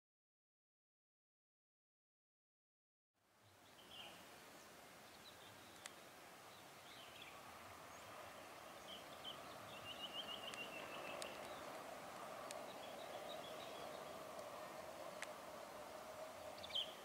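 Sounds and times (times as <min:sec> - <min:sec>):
birds chirping: 0:03.4 - 0:17.0
distant freight train drone: 0:05.7 - 0:17.0.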